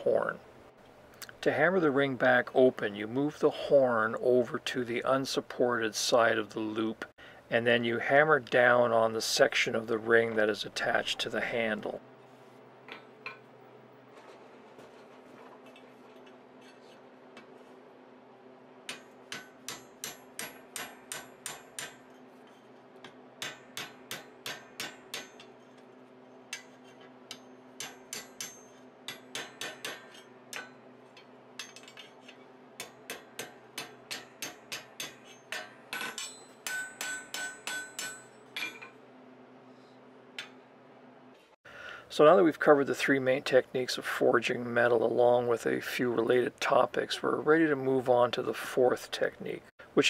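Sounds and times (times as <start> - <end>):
hammer striking steel on anvil: 18.9 - 39.0.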